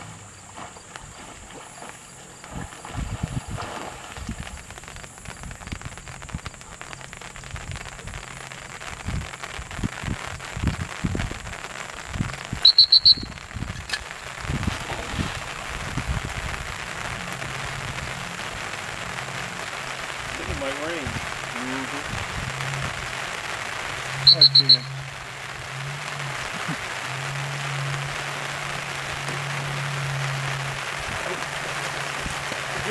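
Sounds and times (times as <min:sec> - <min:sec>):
wind rumble on microphone: 0:00.0 - 0:32.9
dog whistle trill: 0:12.6 - 0:13.4, 0:24.2 - 0:25.0.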